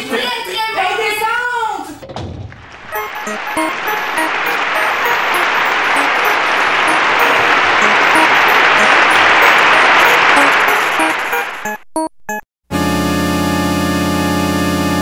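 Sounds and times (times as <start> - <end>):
dense applause: 2.6 - 11.8
short musical notes: 2.8 - 11.8.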